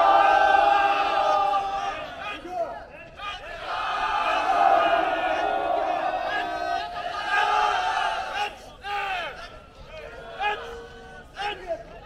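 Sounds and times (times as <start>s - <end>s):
crowd shouting in unison: 0.0s - 2.5s, 3.2s - 9.4s.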